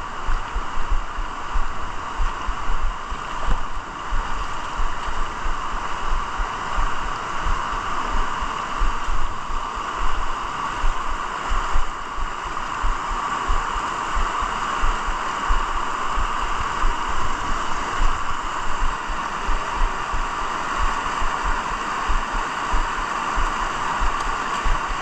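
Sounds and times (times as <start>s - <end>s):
river water rushing over boulders: 0.0s - 25.0s
low thumps on microphone: 0.3s - 6.9s.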